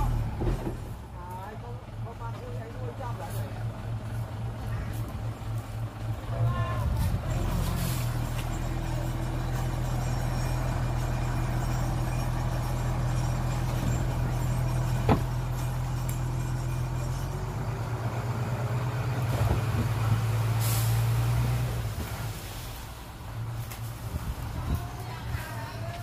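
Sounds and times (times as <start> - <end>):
heavy diesel engine running: 0.0 - 26.0.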